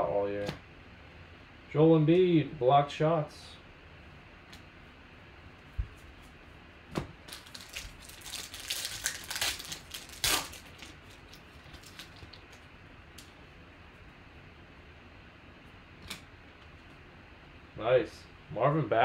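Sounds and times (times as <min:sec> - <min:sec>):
foil wrapper crinkling and tearing: 0:07.3 - 0:12.6.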